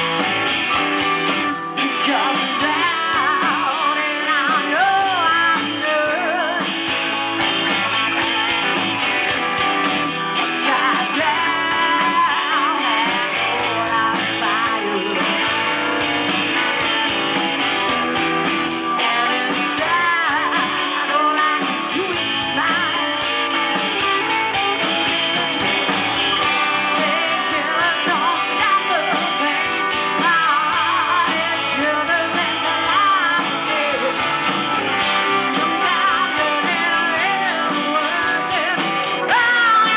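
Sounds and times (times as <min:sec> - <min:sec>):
bass guitar: 0:00.0 - 0:39.9
drums: 0:00.0 - 0:39.9
electric guitars: 0:00.0 - 0:39.9
keyboard: 0:00.0 - 0:39.9
woman singing: 0:01.4 - 0:06.9, 0:09.6 - 0:17.5, 0:18.2 - 0:25.4, 0:26.4 - 0:39.9.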